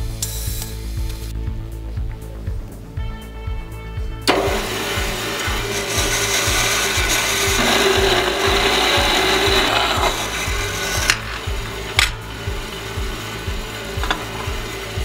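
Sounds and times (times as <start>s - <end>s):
bandsaw cutting through block: 4.3s - 15.0s.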